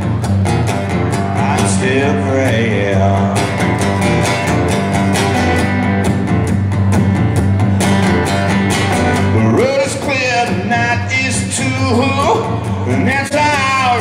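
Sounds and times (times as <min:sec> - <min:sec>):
rock guitar strumming: 0:00.0 - 0:14.0.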